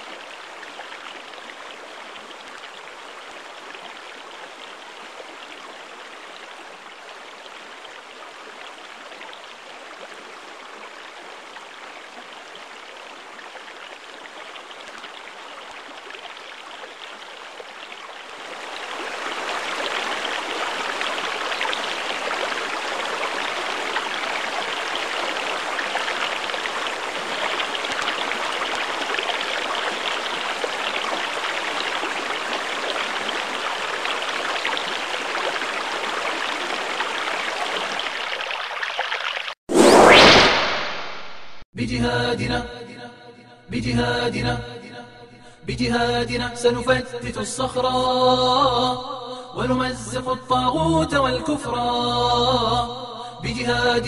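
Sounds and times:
running water rushing: 0.0 - 41.4.

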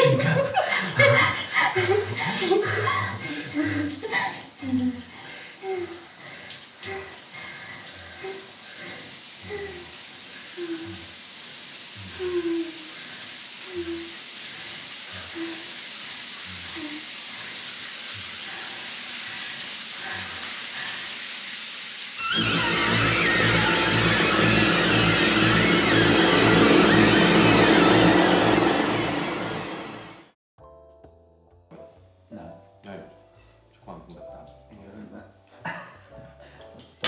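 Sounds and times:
running water hiss: 1.8 - 28.1.

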